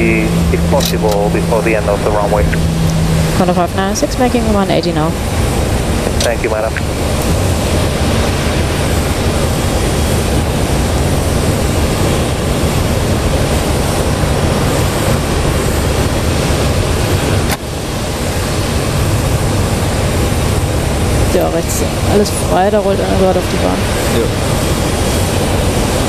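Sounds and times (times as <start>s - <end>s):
jet engines rumbling: 0.0s - 26.0s.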